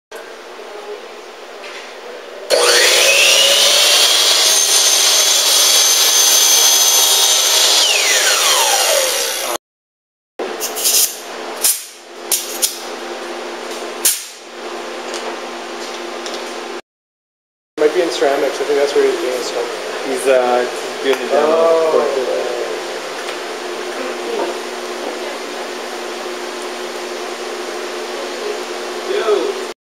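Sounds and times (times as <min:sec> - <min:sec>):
miter saw whining: 0:02.5 - 0:09.6.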